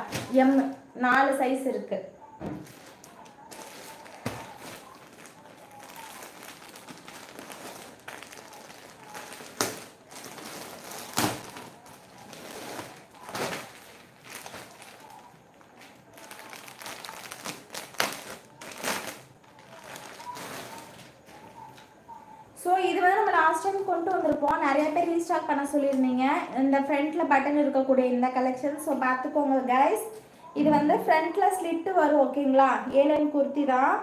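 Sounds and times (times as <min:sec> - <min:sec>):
plastic packaging rustling: 0:00.0 - 0:00.8, 0:02.4 - 0:22.0.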